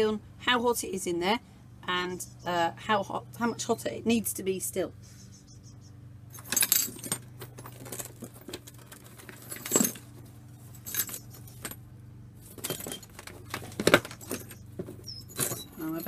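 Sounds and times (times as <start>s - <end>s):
ceramic pieces clinking and clattering: 12.6s - 16.0s.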